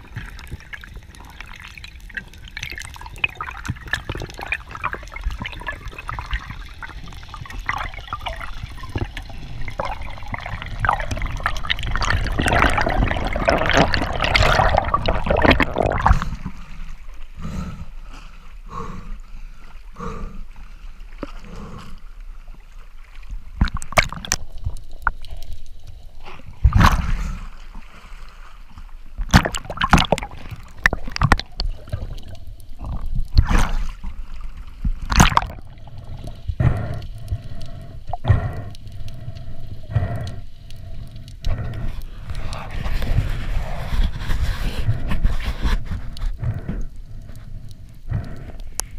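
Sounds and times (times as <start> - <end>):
bubbling rush underwater: 0.0 - 16.6, 23.6 - 25.3, 29.2 - 36.8
water gurgling and sloshing: 0.0 - 48.9
sharp water splashes: 29.2 - 32.2, 35.0 - 35.8.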